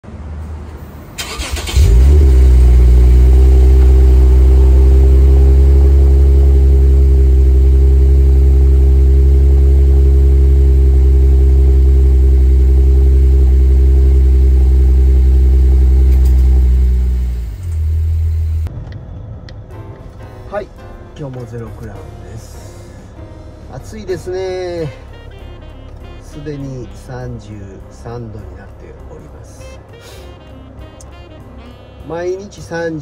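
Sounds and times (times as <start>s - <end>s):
car engine idling: 0.9s - 29.8s
car engine cranking: 1.2s - 20.1s.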